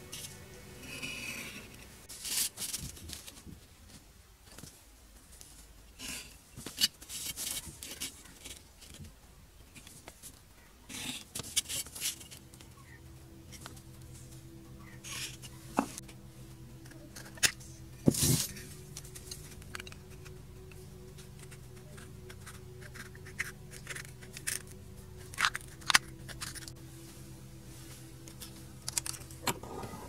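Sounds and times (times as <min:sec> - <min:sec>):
steady low drone: 0:00.0 - 0:03.0, 0:10.7 - 0:30.0.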